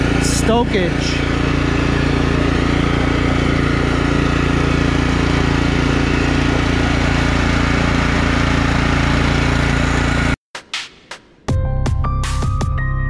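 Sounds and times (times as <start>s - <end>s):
lawn tractor engine running: 0.0s - 10.4s.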